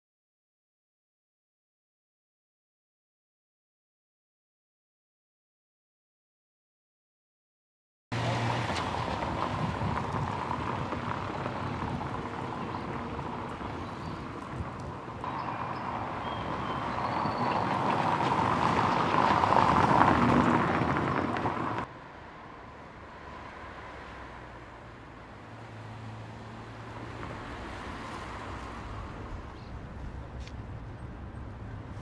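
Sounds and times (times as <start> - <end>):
car driving by: 8.1 - 29.6
street ambience: 8.1 - 32.0.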